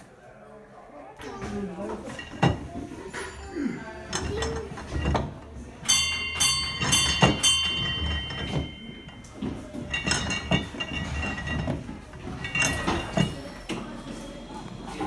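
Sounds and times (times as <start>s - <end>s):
metal clinks: 5.8s - 13.5s
metallic knocks with ringing tone: 5.9s - 9.4s.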